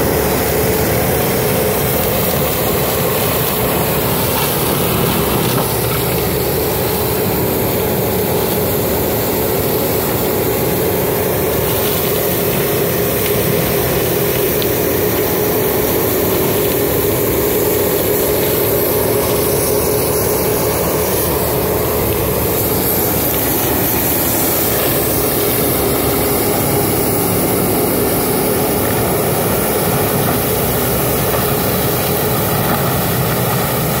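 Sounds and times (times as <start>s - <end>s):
forestry mulcher shredding brush: 0.0s - 34.0s.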